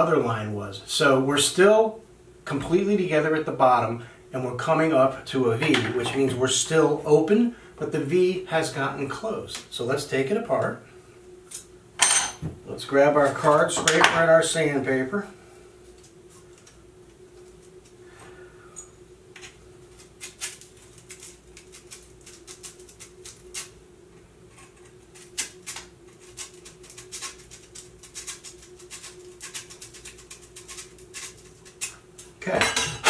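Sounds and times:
faint steady hum: 0:00.0 - 0:33.0.

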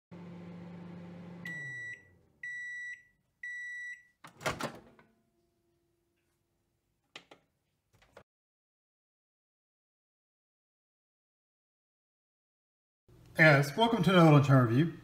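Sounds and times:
microwave oven humming: 0:00.1 - 0:03.8
microwave door clunk and rattle: 0:04.3 - 0:05.0.

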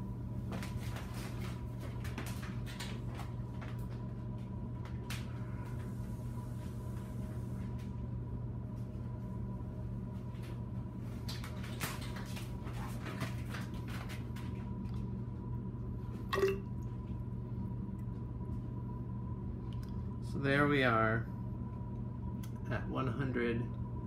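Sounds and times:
low hum: 0:00.0 - 0:11.6, 0:13.5 - 0:24.0
water trickling into cylinder: 0:16.3 - 0:16.9.

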